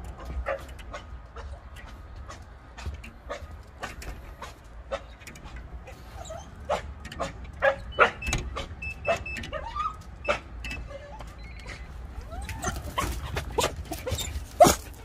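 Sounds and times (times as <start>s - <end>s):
dog whining: 5.9s - 6.8s, 7.6s - 15.0s
dog claws scratching on glass: 12.4s - 15.0s.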